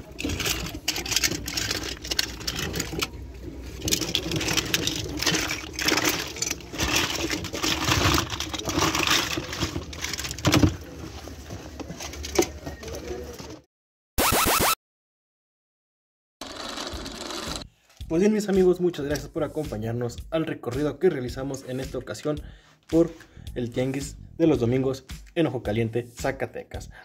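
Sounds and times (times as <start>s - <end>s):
plastic toys rattling in box: 0.0s - 13.6s, 16.4s - 17.6s.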